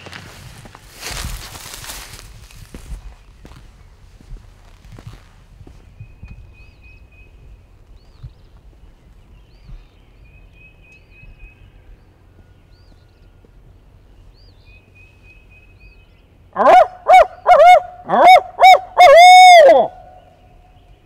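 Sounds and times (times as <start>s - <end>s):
owl hooter call: 16.6s - 20.4s.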